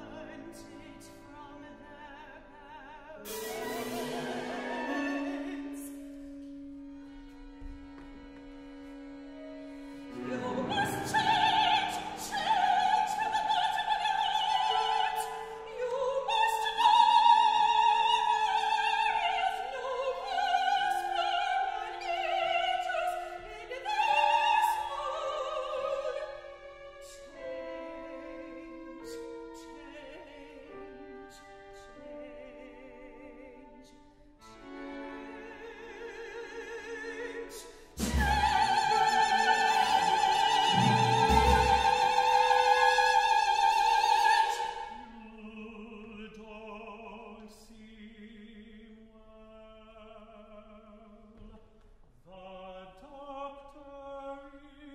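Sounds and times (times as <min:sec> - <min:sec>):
bowed strings: 0:00.0 - 0:46.3
operatic singing: 0:00.0 - 0:51.6
sharp percussion strikes: 0:03.3 - 0:05.4.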